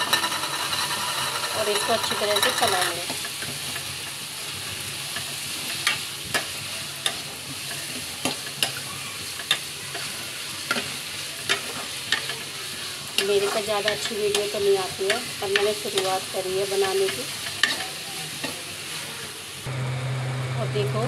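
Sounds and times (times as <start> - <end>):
spatula scraping metal pan: 0.0 - 3.0
food sizzling in a pan: 0.0 - 20.2.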